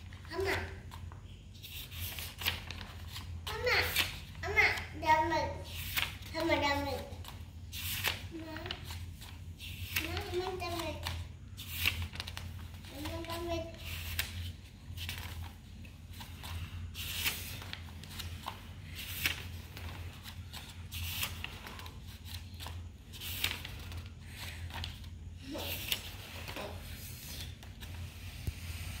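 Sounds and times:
paper pages turning: 0.0s - 5.0s, 5.6s - 28.8s.

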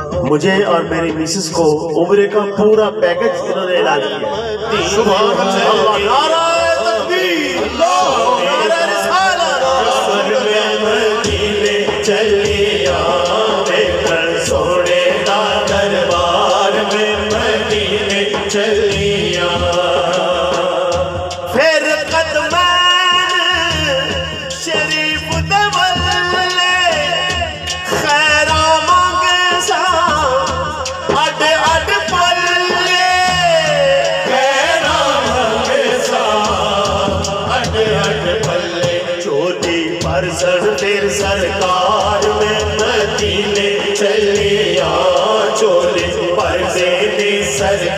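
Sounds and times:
man singing over loudspeaker: 0.0s - 47.9s
steady drum beat: 0.0s - 47.9s
chanted vocal drone: 4.1s - 22.7s, 31.3s - 47.9s.

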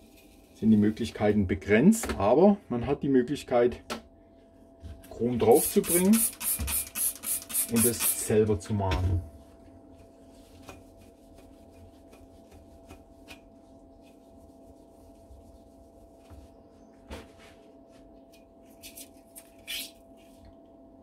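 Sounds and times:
faint steady hum: 0.0s - 21.0s
rubbing and handling noises: 9.4s - 20.5s.

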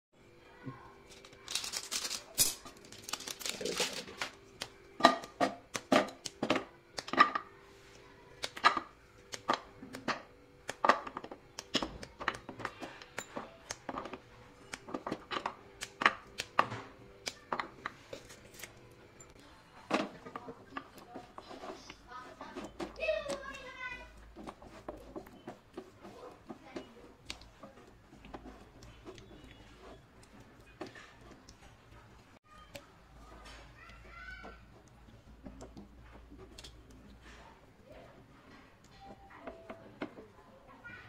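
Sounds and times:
plastic wrapper crinkling: 1.1s - 4.8s
chocolate snapping: 1.2s - 7.5s, 8.4s - 12.5s, 13.1s - 17.9s.

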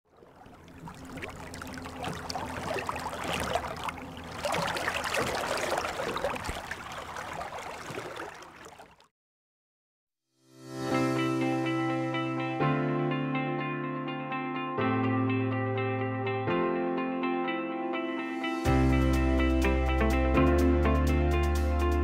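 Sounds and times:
running gurgling water: 0.0s - 9.1s.

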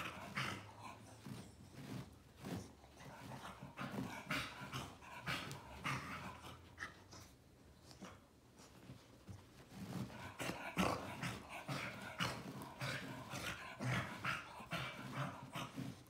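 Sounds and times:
dog grunting: 0.0s - 1.1s, 10.2s - 16.0s
fur scraping on carpet: 0.0s - 6.5s, 8.6s - 16.0s.

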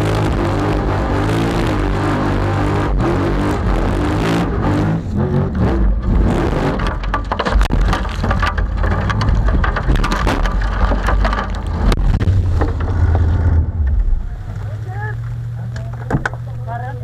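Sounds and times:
buggy engine running hard: 0.0s - 17.0s
gravel pelting body panels: 5.8s - 17.0s.

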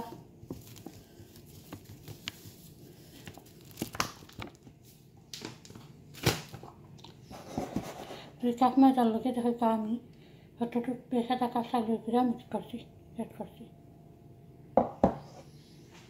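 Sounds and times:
plastic packet crinkling: 0.5s - 6.7s.

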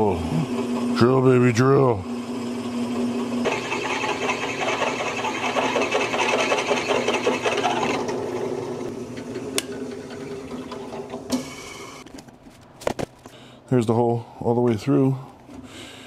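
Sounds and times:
drill press running: 0.0s - 12.0s
drill bit grinding through steel: 3.4s - 8.5s.

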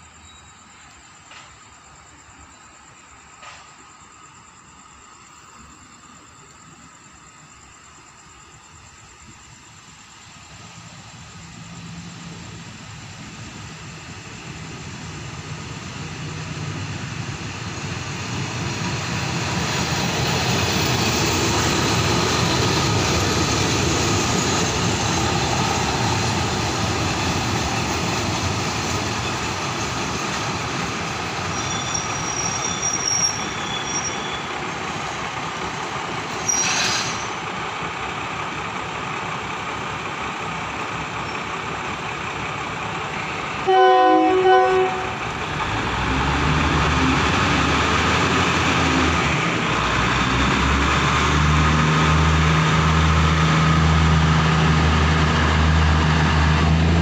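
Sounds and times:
diesel train engine and wheels: 0.0s - 57.0s
sharp hiss: 23.4s - 37.9s
brake squeals: 31.3s - 34.9s, 36.2s - 37.5s.

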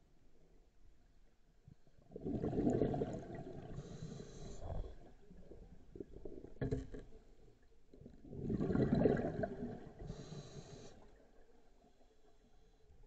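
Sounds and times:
burbling rush of bubbles: 2.1s - 3.8s, 8.2s - 10.0s
diver breathing through regulator: 3.7s - 5.0s, 10.0s - 11.1s.

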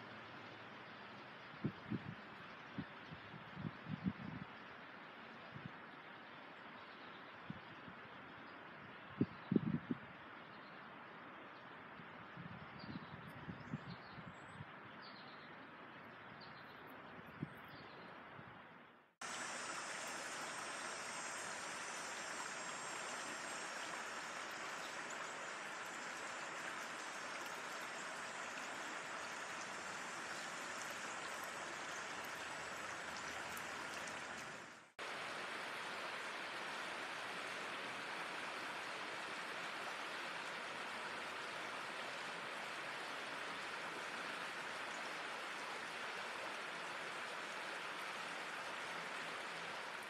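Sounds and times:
river flowing over rocks: 19.2s - 50.0s.

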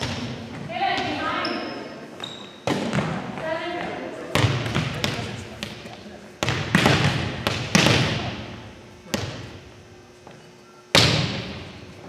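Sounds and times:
volleyball being struck: 2.6s - 5.8s, 6.4s - 9.6s, 10.9s - 11.7s.

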